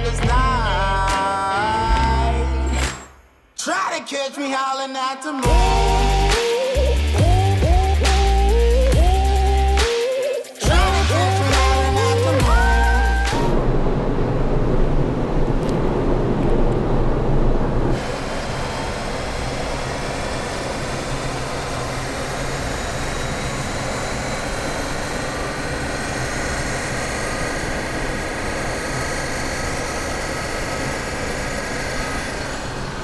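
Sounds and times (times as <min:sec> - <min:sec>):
background music: 0:00.0 - 0:04.5, 0:05.1 - 0:13.6
car engine on dynamometer: 0:05.4 - 0:09.9, 0:10.6 - 0:33.0.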